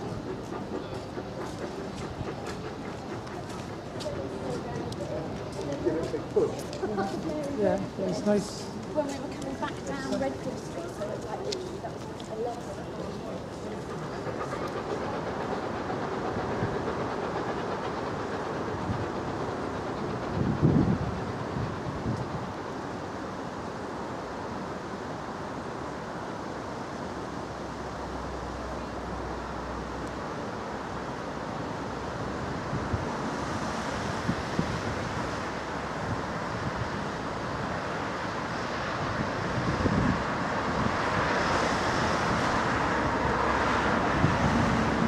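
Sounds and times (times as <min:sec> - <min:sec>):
steam locomotive approaching: 0:00.0 - 0:45.0
wind: 0:00.0 - 0:45.0
road traffic: 0:25.5 - 0:45.0.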